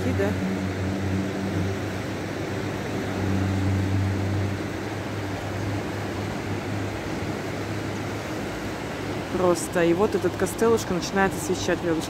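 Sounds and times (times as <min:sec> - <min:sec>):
low hum: 0:00.0 - 0:09.3
river rushing: 0:00.0 - 0:12.0.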